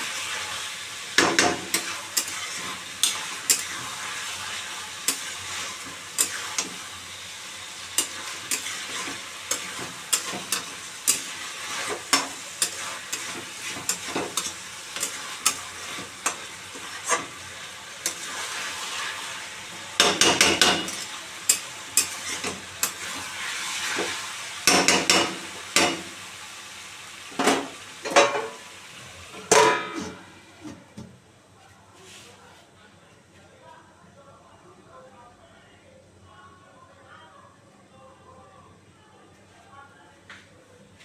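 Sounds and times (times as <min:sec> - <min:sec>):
metal spatula scraping pan: 0:00.0 - 0:06.8, 0:07.9 - 0:17.4
chicken and onions sizzling in oil: 0:00.0 - 0:30.6
steel plate clanking on pan: 0:27.4 - 0:28.6, 0:29.4 - 0:30.2.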